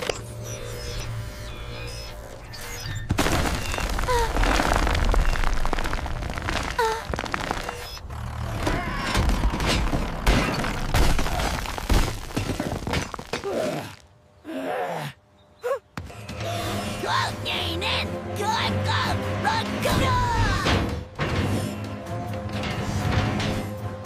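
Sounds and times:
concrete wall cracking and crumbling: 3.1 - 8.0, 9.1 - 14.0
background music: 16.0 - 24.0.

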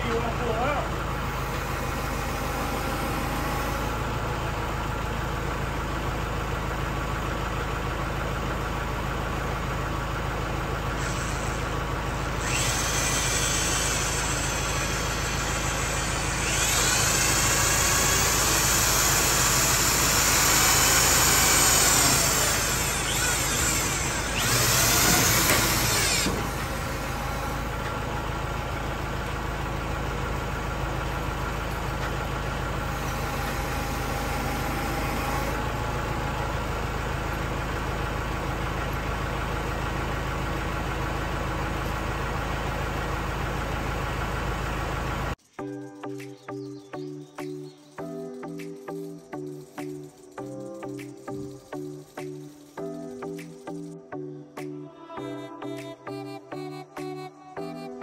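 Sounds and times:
tractor engine idling: 0.0 - 54.1
power drill driving screws: 1.4 - 4.0, 11.0 - 11.6, 12.4 - 27.9, 32.9 - 35.6.

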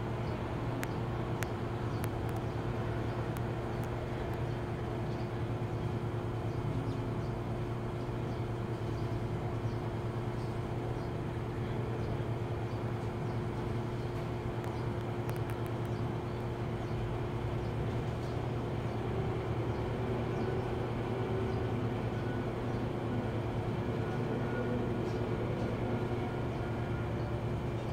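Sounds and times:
low mechanical hum: 0.0 - 27.9
faint clicks: 0.8 - 4.6, 14.2 - 16.0.

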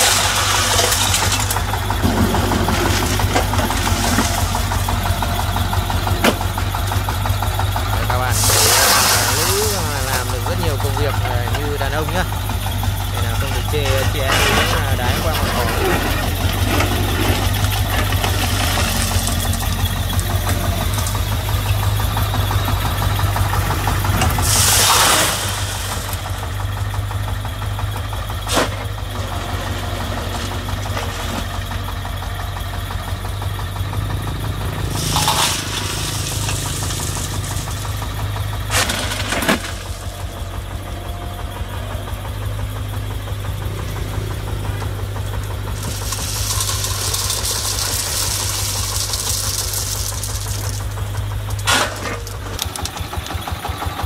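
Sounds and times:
stone pouring: 0.0 - 5.6, 8.0 - 22.4, 24.2 - 26.7, 34.9 - 40.3, 45.5 - 53.0
excavator diesel engine running: 0.0 - 54.0.

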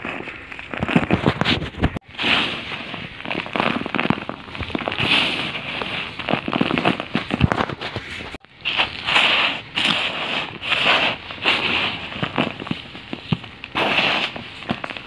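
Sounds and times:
dry balls crumbling under fingers: 0.0 - 8.0.

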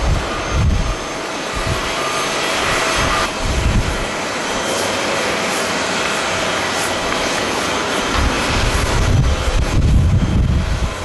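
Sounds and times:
wind buffeting microphone: 0.0 - 2.0, 2.6 - 4.7, 8.0 - 11.0
jet engines rushing and whining: 0.0 - 11.0.

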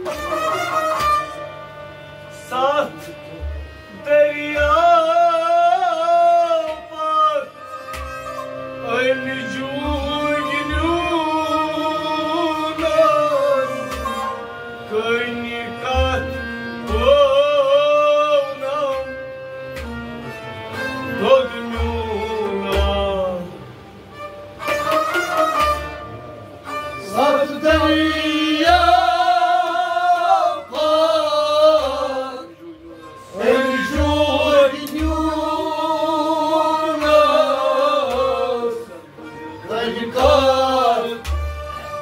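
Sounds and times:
bowed sarangi: 0.0 - 42.0
harmonium: 0.0 - 42.0
men singing devotional song: 3.9 - 7.6, 8.8 - 14.1, 14.9 - 19.2, 21.1 - 23.5, 27.0 - 41.6.

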